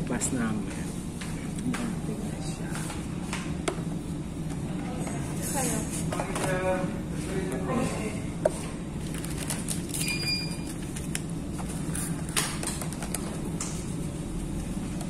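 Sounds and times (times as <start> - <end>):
steady low hum: 0.0 - 15.0
food wrapping rustling: 9.0 - 12.3.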